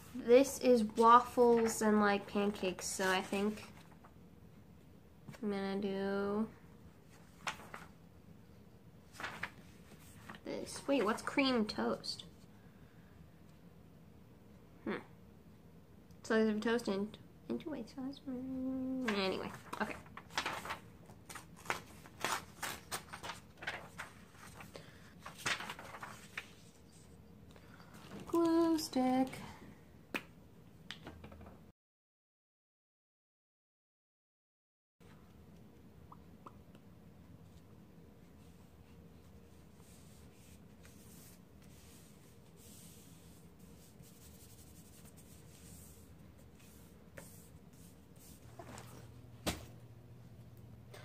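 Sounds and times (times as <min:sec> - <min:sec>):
paper rustling and crackling: 0:00.8 - 0:04.1, 0:07.0 - 0:08.0, 0:09.1 - 0:11.5, 0:19.0 - 0:27.1, 0:39.7 - 0:49.7
hands rubbing paper: 0:39.6 - 0:48.8.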